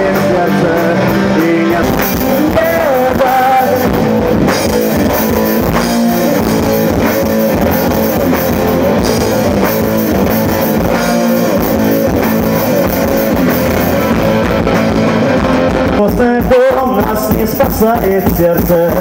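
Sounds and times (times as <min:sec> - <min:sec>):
bass guitar: 0:00.0 - 0:19.0
drum kit: 0:00.0 - 0:19.0
electric guitars: 0:00.0 - 0:19.0.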